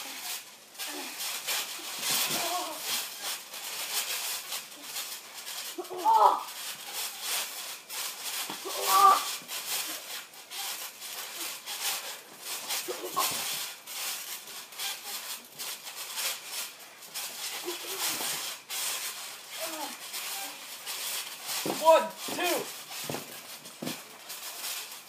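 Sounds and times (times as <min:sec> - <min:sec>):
bodies landing on trampoline: 0:00.2 - 0:25.0
boys yelling and grunting: 0:05.8 - 0:06.5, 0:08.7 - 0:09.4, 0:21.7 - 0:22.7.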